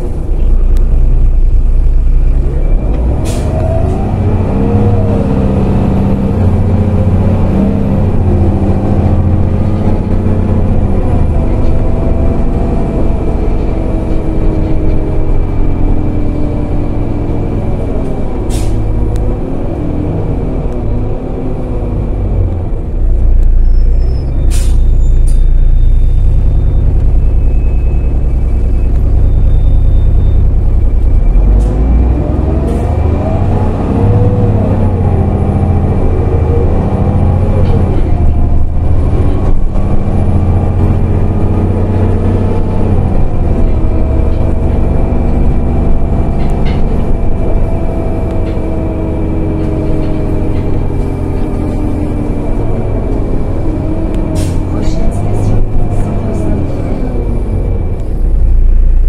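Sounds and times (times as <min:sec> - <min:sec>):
bus diesel engine accelerating: 0:00.0 - 0:59.0
air brake hiss: 0:18.5 - 0:18.8, 0:24.5 - 0:24.9.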